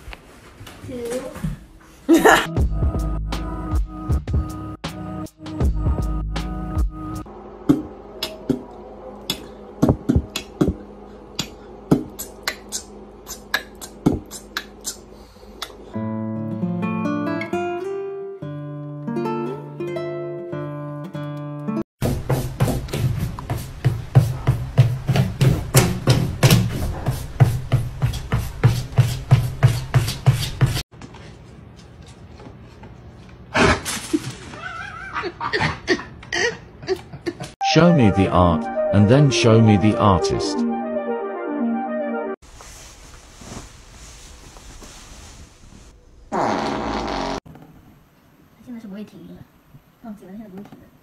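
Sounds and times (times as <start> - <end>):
music with steady beat: 2.5 - 8.6, 9.3 - 10.8.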